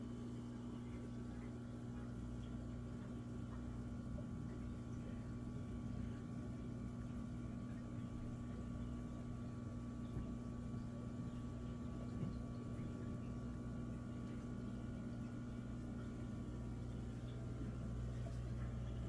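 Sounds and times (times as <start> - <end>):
faint bubbling: 0.0 - 19.0.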